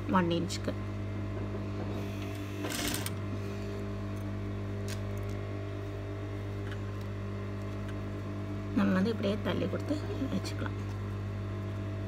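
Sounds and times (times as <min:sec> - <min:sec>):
sewing machine motor humming: 0:01.8 - 0:03.3.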